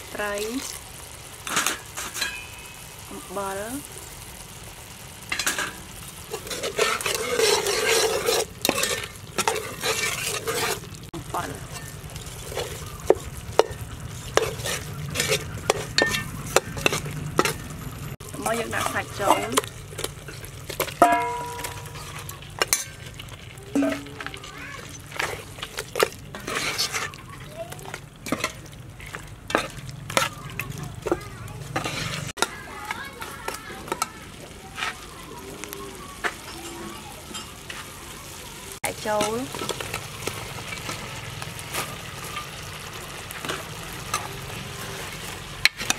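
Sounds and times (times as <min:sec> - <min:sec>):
spice paste sizzling: 0:00.0 - 0:45.9
ladle scraping metal pot: 0:01.4 - 0:02.8, 0:05.3 - 0:34.1
soup bubbling: 0:03.7 - 0:45.9.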